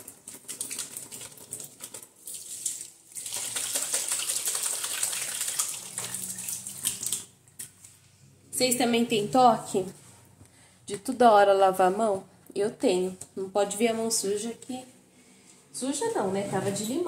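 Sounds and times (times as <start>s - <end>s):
hands splashing in water: 0.3s - 7.7s.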